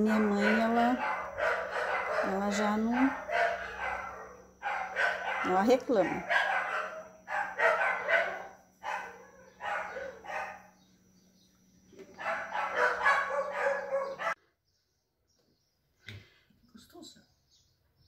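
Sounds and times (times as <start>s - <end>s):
animal calls: 12.1s - 14.4s.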